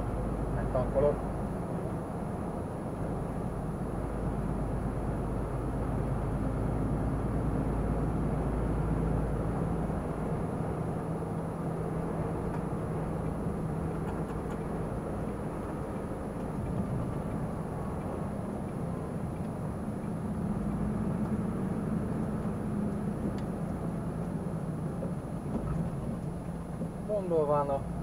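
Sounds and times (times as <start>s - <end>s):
truck diesel engine rumble: 0.0s - 28.0s
tyre noise on road: 11.6s - 28.0s.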